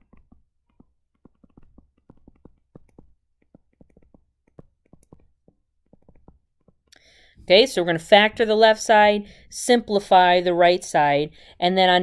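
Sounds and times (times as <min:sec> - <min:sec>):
stylus tapping on touchscreen: 0:00.0 - 0:07.0.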